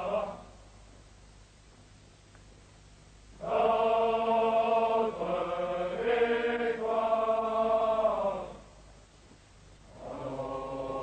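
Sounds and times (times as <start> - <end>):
men's chorus singing marching song: 0.0 - 0.5, 3.4 - 8.6, 9.9 - 11.0.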